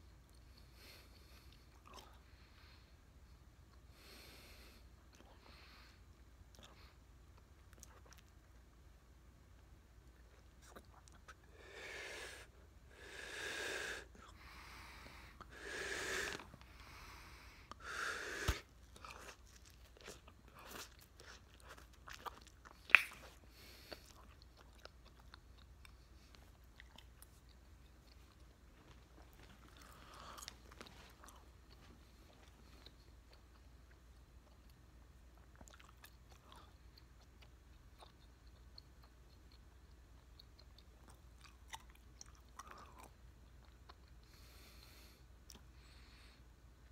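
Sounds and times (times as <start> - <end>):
wet chewing and smacking: 6.5 - 8.7, 18.5 - 44.4
breathy blowing: 11.5 - 18.7.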